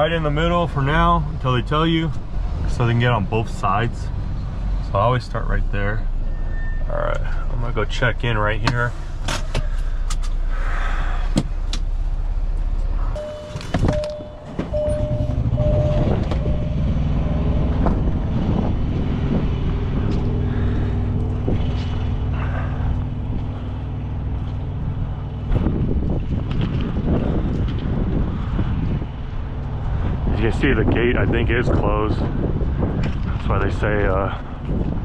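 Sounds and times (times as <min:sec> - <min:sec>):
diesel truck engine idling: 0:06.0 - 0:26.3
short beeps: 0:13.2 - 0:17.8.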